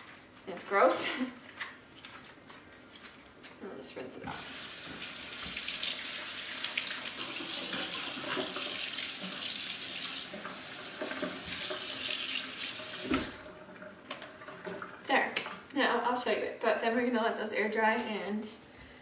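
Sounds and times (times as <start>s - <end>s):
faucet water splashing in sink: 4.3s - 15.7s.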